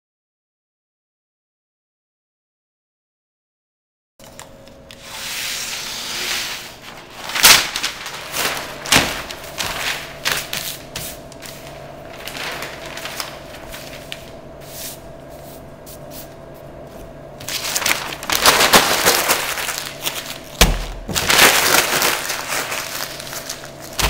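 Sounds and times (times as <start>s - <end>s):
paper crackling rustles: 4.9s - 24.0s
paper pulled off a roll: 5.0s - 16.3s, 17.4s - 24.0s.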